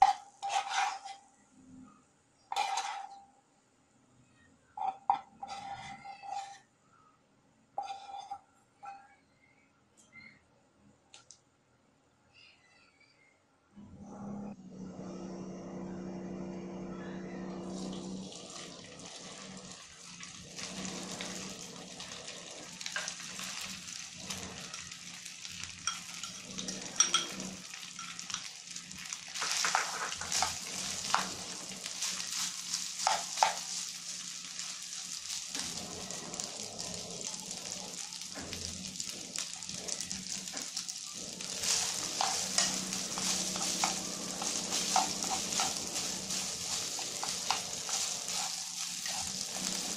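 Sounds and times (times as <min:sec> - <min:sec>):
rice sizzling in a frying pan: 0:00.0 - 0:01.2, 0:02.5 - 0:03.1, 0:17.8 - 0:49.9
chopsticks scraping a pan: 0:00.0 - 0:01.3, 0:02.5 - 0:03.2, 0:04.8 - 0:06.6, 0:07.8 - 0:09.1, 0:25.8 - 0:36.6, 0:38.4 - 0:49.9.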